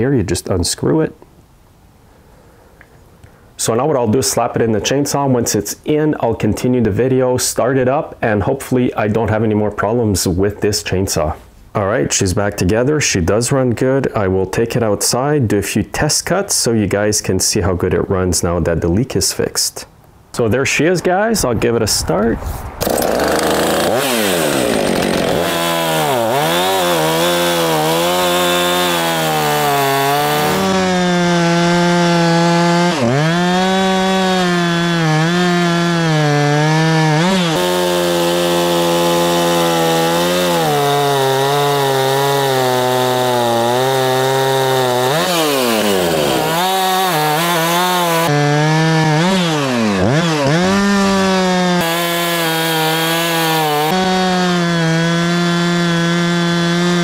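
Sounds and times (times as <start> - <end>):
chainsaw cutting logs: 22.8 - 57.0.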